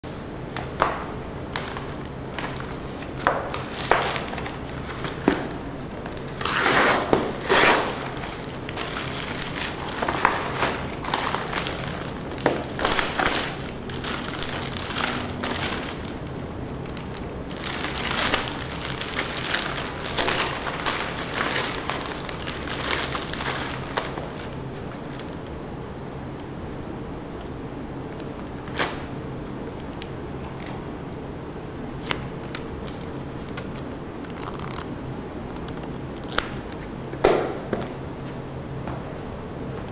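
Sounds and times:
plastic bag crinkling: 1.6 - 25.6
paperboard envelope tearing: 6.2 - 16.4.

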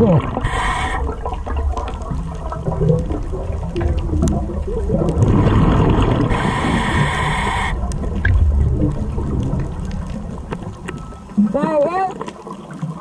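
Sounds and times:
bubbles gurgling underwater: 0.0 - 13.0
regulator inhale hiss: 0.4 - 1.2, 6.3 - 8.0.

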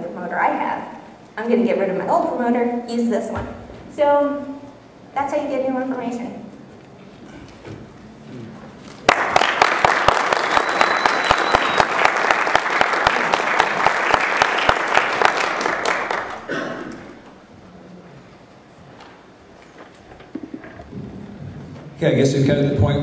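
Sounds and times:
audience applauding: 9.0 - 17.1.

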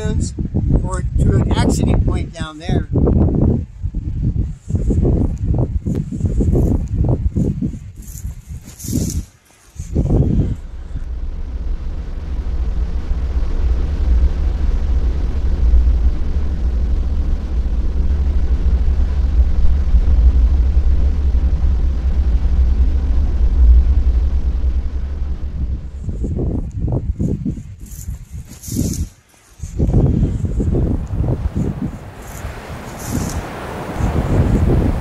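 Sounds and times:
vehicle driving on sand: 4.8 - 35.0.

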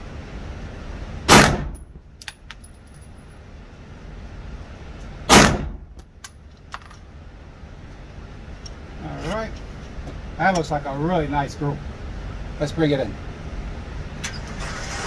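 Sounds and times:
pistol shots echoing indoors: 1.3 - 1.8.

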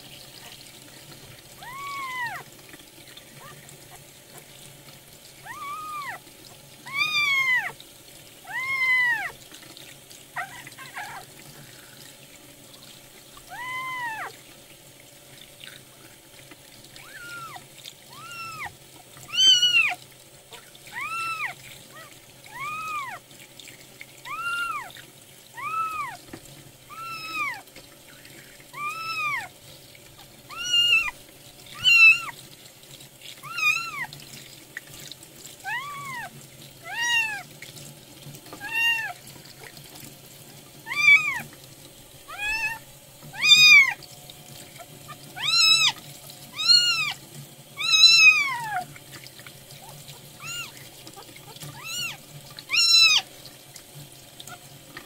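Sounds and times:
tap water running into sink: 0.0 - 55.0
kitten mewing: 5.4 - 6.2, 6.9 - 7.7, 17.0 - 18.7, 19.3 - 20.0, 26.9 - 27.6, 28.8 - 29.5, 30.5 - 31.1, 31.8 - 32.3, 33.4 - 34.1, 36.9 - 37.4, 38.6 - 39.2, 40.9 - 41.4, 42.3 - 44.0, 45.4 - 47.2, 47.8 - 48.9, 50.4 - 53.3.

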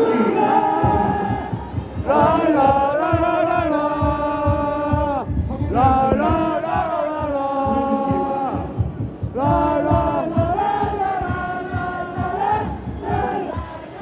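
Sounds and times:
crowd chanting in unison: 0.0 - 14.0
steady low beat: 0.0 - 14.0.

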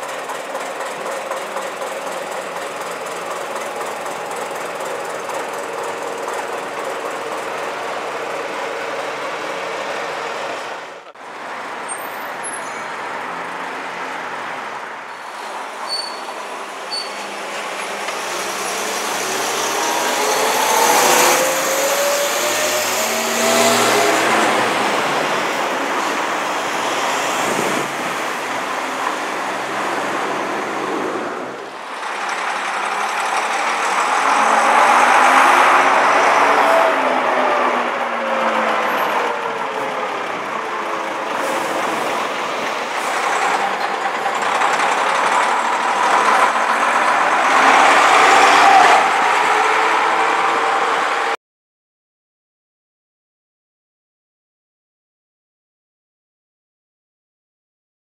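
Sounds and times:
vehicles passing by: 5.6 - 51.4.

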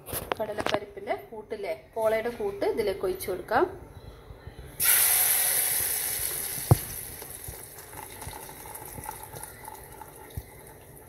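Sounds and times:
batter sizzling in hot oil: 4.8 - 10.7.

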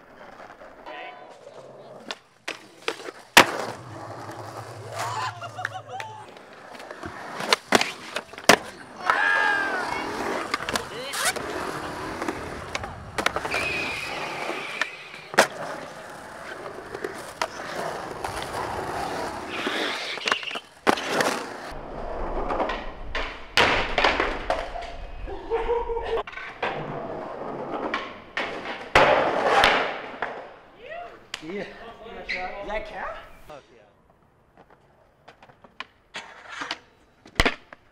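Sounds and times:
skateboard wheels rolling on concrete: 0.0 - 37.9
skateboard clacking: 2.0 - 21.3.

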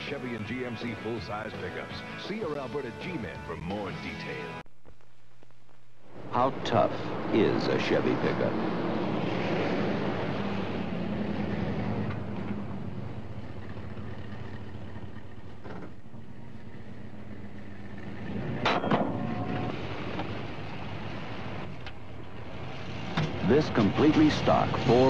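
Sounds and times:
pickup truck engine running: 11.4 - 25.0.

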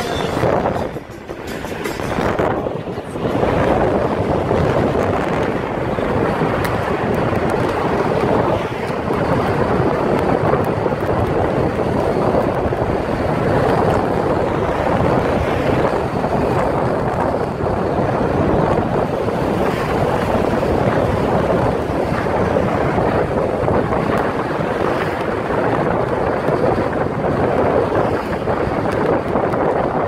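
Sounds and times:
car road noise: 0.0 - 30.0
wind rushing over microphone: 0.0 - 30.0.

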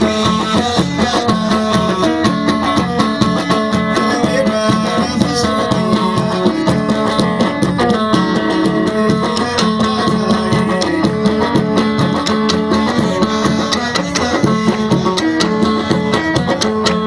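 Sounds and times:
plucked string melody: 0.0 - 17.0
steady drum beat: 0.0 - 17.0.

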